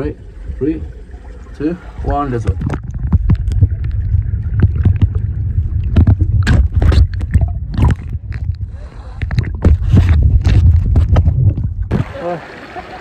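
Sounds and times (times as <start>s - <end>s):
water sloshing and splashing: 0.0s - 13.0s
heavy low rumble: 2.2s - 12.0s.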